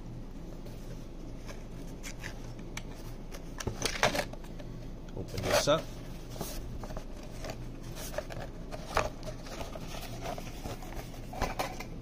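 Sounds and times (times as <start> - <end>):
lamp shade rustling and crinkling: 5.2 - 11.9.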